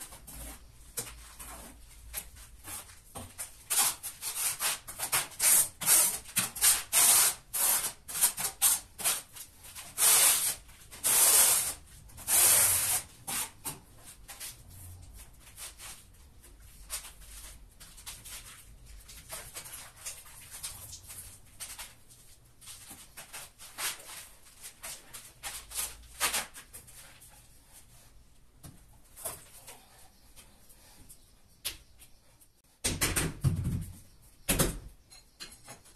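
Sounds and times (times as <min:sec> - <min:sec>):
trowel scraping through tile mortar: 0:03.7 - 0:09.3, 0:09.9 - 0:13.6.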